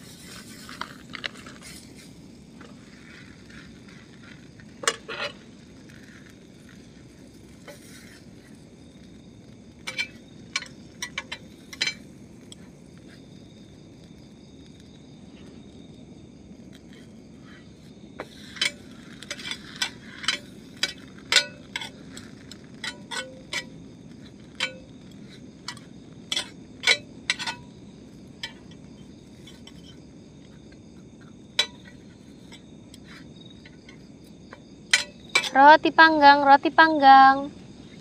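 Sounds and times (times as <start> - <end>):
crickets chirping: 0.0 - 38.0
metal utensil clinking on frying pan: 9.9 - 12.0, 22.8 - 23.7, 25.7 - 27.6, 34.9 - 35.6.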